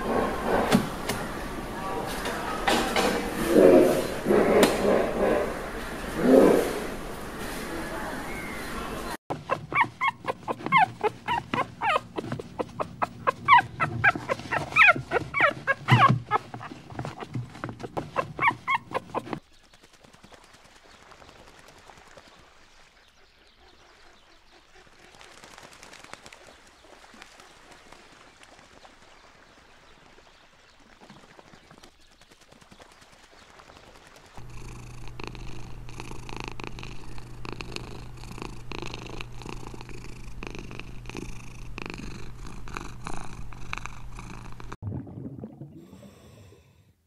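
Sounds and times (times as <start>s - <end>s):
dog yipping and whimpering: 9.4s - 16.8s, 18.2s - 19.4s
cat purring faintly: 34.4s - 44.8s.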